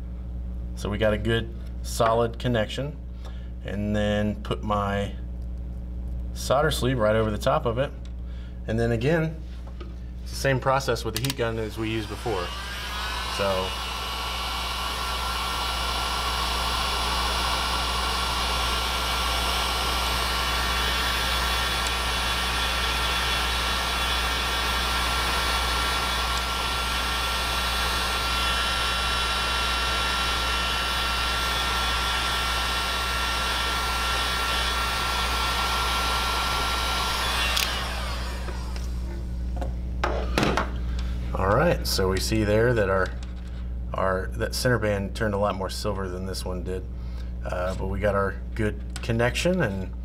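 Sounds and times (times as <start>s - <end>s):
heat gun blowing with whine: 11.2s - 41.1s.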